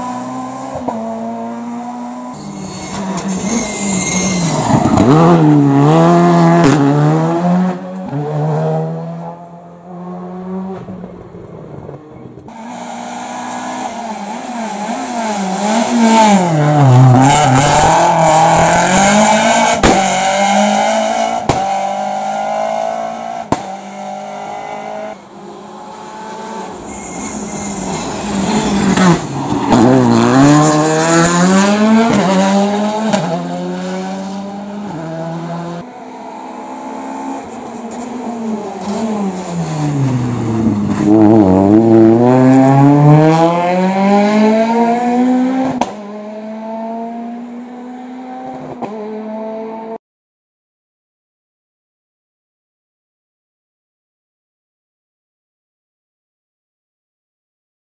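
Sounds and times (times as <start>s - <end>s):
rally car engines revving: 0.0s - 50.0s
tyre squeal: 2.3s - 5.2s, 26.7s - 30.2s.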